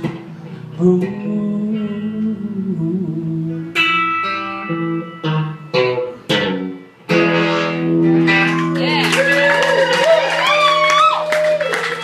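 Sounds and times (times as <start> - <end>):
electric guitar strumming chords: 0.0 - 9.0.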